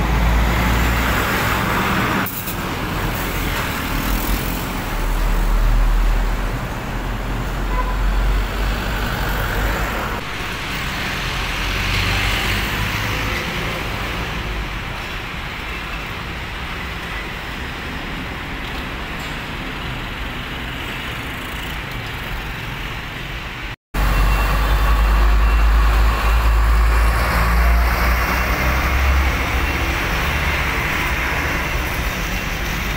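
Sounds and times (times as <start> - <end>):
trucks engine rumble: 0.0 - 32.9
tyre and traffic noise: 0.0 - 32.9.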